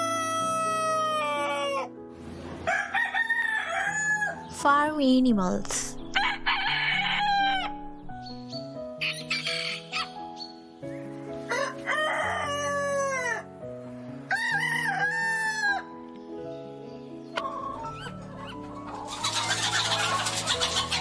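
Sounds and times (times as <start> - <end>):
rooster crowing: 2.6 - 4.4, 6.2 - 7.8, 11.5 - 13.4, 14.3 - 15.8.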